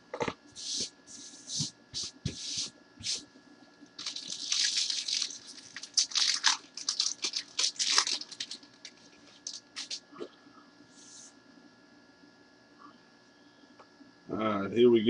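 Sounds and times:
plastic wrapping crinkling and tearing: 0:04.0 - 0:10.0.

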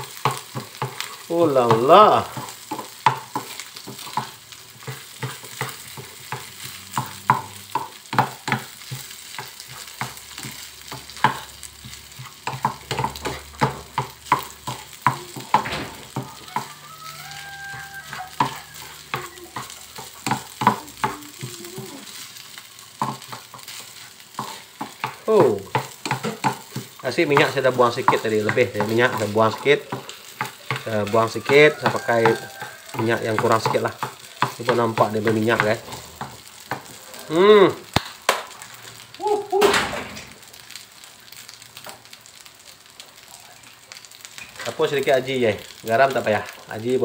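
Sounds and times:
spatula scraping a frying pan: 0:00.0 - 0:01.3, 0:02.3 - 0:30.9
light sizzle: 0:00.0 - 0:47.0.

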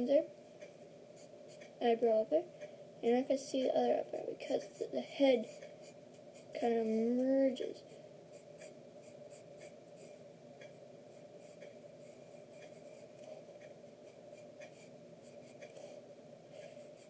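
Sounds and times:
low steady hum: 0:00.0 - 0:17.0
pencil scratching on paper: 0:00.6 - 0:01.8, 0:04.1 - 0:10.2, 0:11.1 - 0:17.0.

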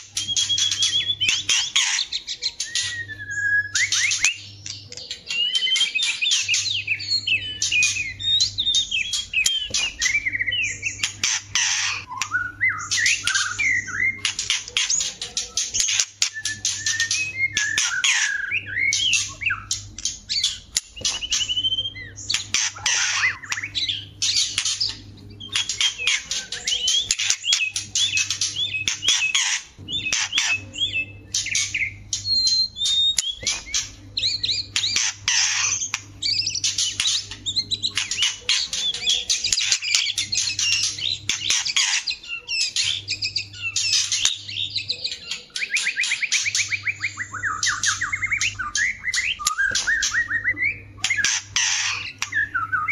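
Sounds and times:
bird trill: 0:00.0 - 0:52.9
bird whistled phrases: 0:00.0 - 0:52.9
birds chattering and singing: 0:00.0 - 0:52.9.

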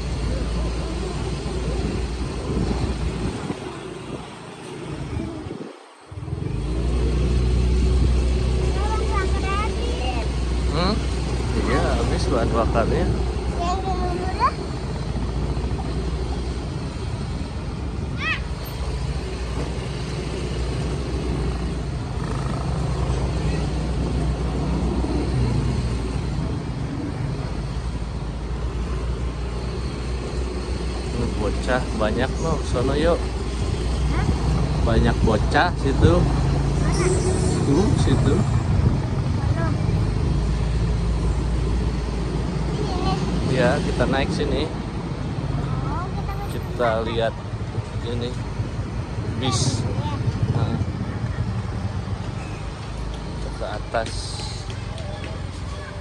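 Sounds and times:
wind rumble on microphone: 0:00.0 - 0:08.5, 0:37.5 - 0:40.9
motorcycle engine running: 0:19.2 - 0:25.7, 0:46.9 - 0:56.0
motor scooter engine running: 0:20.4 - 0:25.6.

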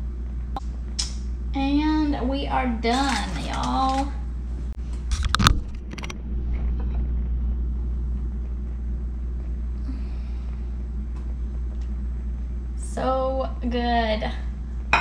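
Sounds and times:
low kitchen rumble: 0:00.0 - 0:15.0.

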